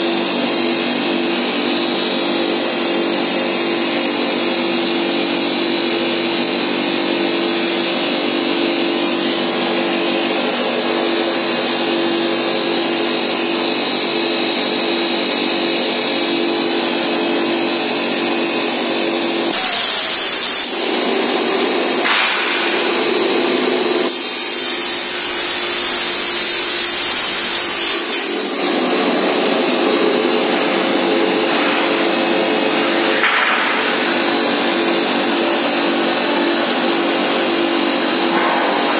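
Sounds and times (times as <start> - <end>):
saw cutting with high-pitched hiss: 19.3 - 21.0, 24.0 - 29.1
machine hum: 20.6 - 38.9.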